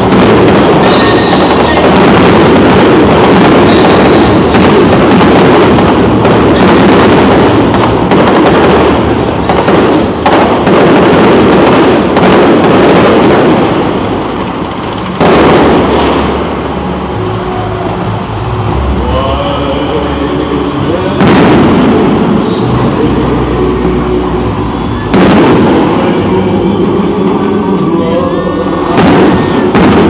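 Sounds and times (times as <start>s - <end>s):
fireworks bangs and crackle: 0.0s - 30.0s.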